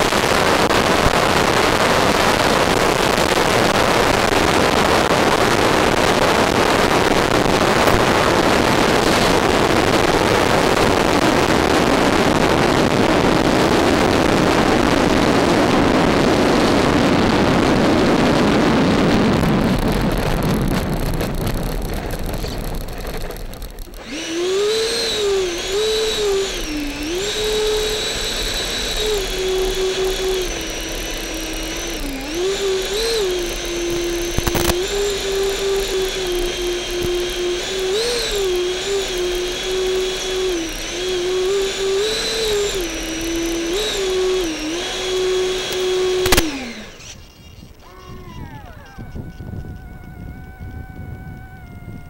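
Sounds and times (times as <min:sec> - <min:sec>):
electric motor whining: 0:00.0 - 0:52.0
sharp click: 0:33.4 - 0:35.1, 0:45.6 - 0:47.6.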